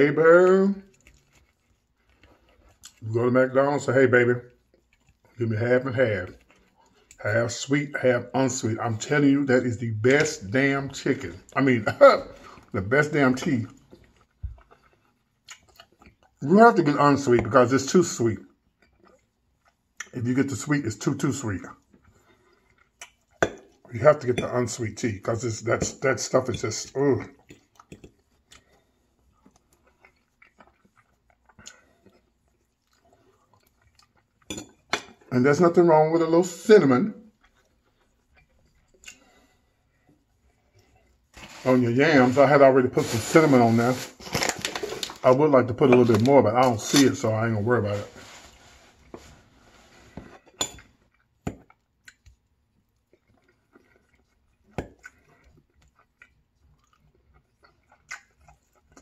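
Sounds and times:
person chewing food: 0.7 - 7.3, 11.2 - 16.4, 18.4 - 20.2, 21.6 - 35.3, 37.2 - 41.6, 48.2 - 59.0
mouth clicks and smacks: 13.4 - 16.4, 22.7 - 23.9, 29.4 - 34.5, 37.3 - 39.3, 51.1 - 59.0.

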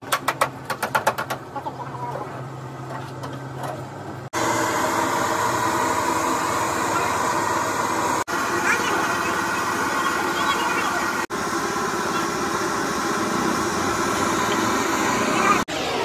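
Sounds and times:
steady low hum: 1.6 - 16.0
loud machine noise: 4.2 - 16.0.

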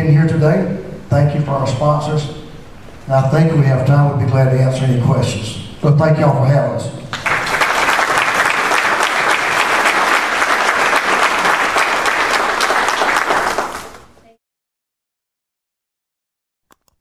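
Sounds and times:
audience applauding: 7.2 - 14.2.

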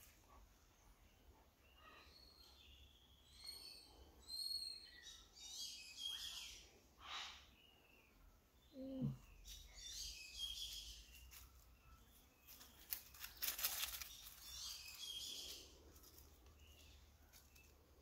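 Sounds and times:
faint bird chirps: 0.0 - 18.0
brief rustle: 12.5 - 14.5.

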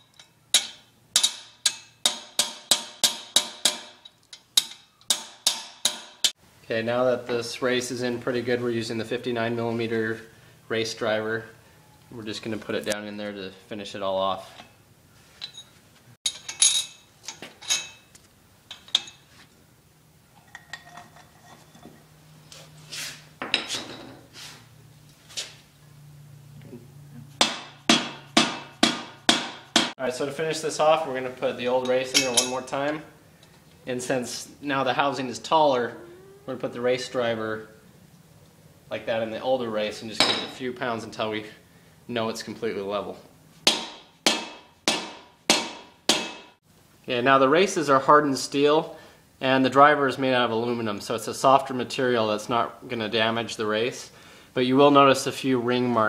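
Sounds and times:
hammer tapping steel: 0.1 - 6.4
metal clinking and clattering: 15.4 - 18.1, 20.4 - 22.0
metallic ring: 15.4 - 18.1.

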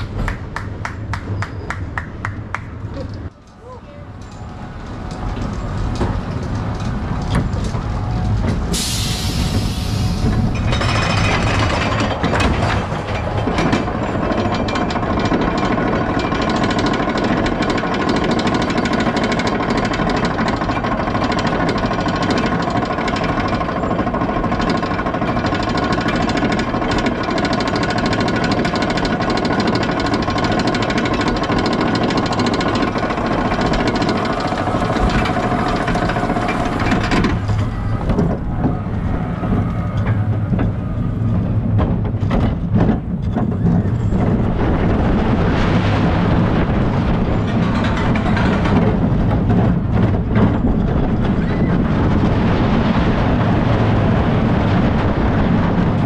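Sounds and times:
lift chain droning: 2.8 - 56.0
anti-rollback dogs clattering: 10.3 - 45.1, 46.6 - 52.9.

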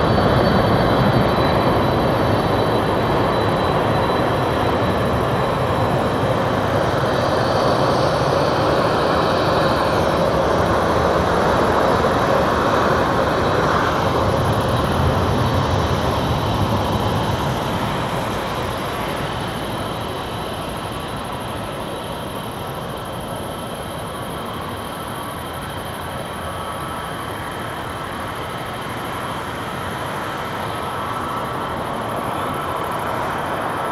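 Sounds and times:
jet engines roaring: 0.0 - 33.9.

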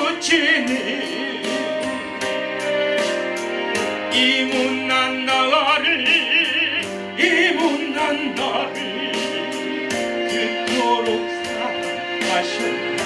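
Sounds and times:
man singing with vibrato: 0.0 - 2.1, 4.0 - 13.0
keyboard accompaniment: 0.0 - 13.0.

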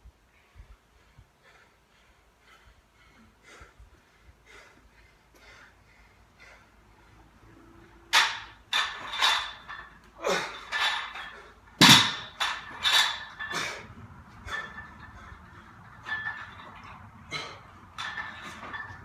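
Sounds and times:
barbell plates clanking: 7.8 - 19.0.

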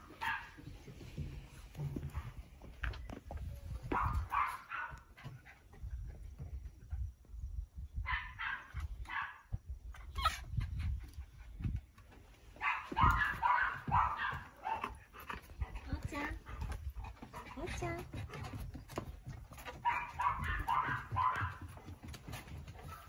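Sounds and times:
dog yipping and barking: 0.2 - 0.6, 3.9 - 5.0, 8.1 - 9.4, 10.0 - 10.5, 12.6 - 15.0, 19.7 - 21.7.

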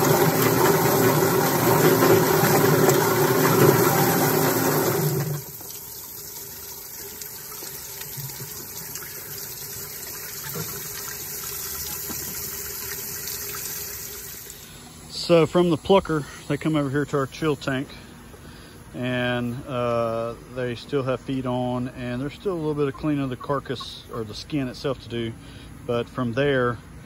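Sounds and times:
chicken plucker motor running: 0.0 - 5.5
water washing: 0.0 - 14.6.

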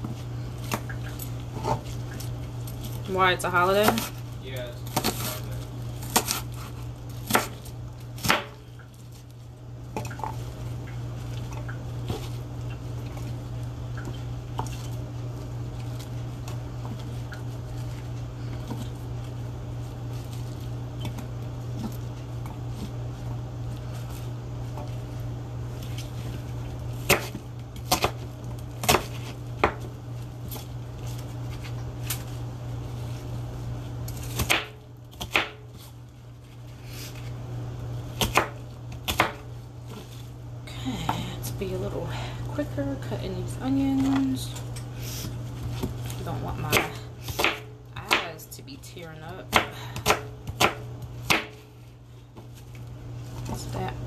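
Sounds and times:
steady low hum: 0.0 - 54.0
knife chopping on cutting board: 3.8 - 4.2, 6.0 - 8.6, 27.0 - 28.2, 28.8 - 29.9, 34.2 - 35.7, 38.2 - 40.0, 46.6 - 48.3, 49.5 - 51.7.

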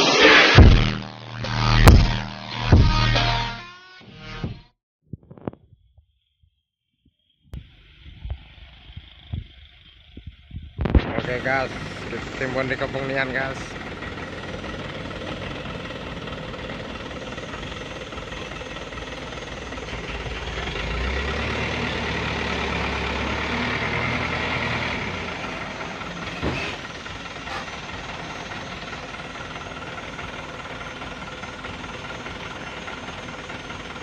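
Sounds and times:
diesel truck engine: 0.0 - 3.5, 7.6 - 34.0
sharp knock: 0.2 - 1.0, 1.8 - 3.2.

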